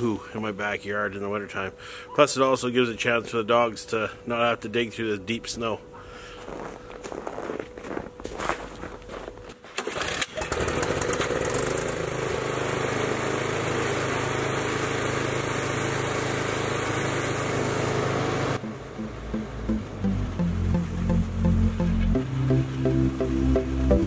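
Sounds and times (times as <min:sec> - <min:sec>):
small gasoline engine starting: 0:09.7 - 0:19.0.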